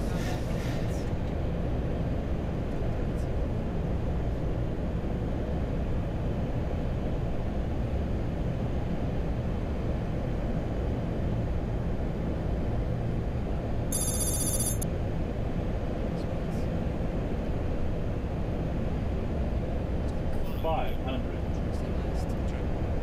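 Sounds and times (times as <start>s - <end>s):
airflow and engines rumbling: 0.0s - 23.0s.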